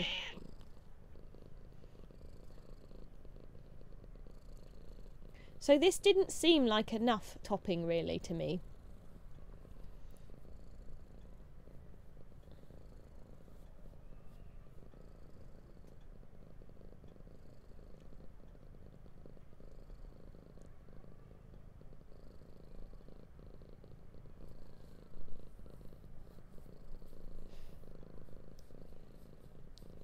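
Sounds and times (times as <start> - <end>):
cat purring: 0.0 - 30.0
faint clicks: 9.2 - 19.9, 28.2 - 30.0.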